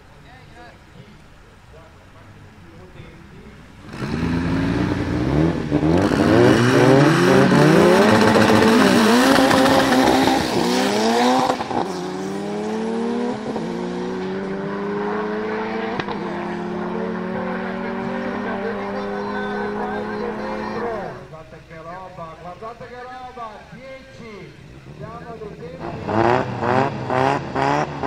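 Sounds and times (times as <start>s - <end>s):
drag car engines accelerating: 3.8s - 22.7s, 24.5s - 28.0s.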